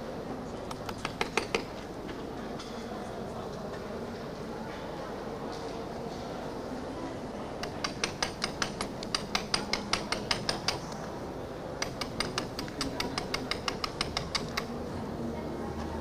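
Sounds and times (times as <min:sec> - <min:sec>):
light tapping of hand tool on plaster: 0:00.7 - 0:01.8, 0:07.6 - 0:11.0, 0:11.8 - 0:14.8.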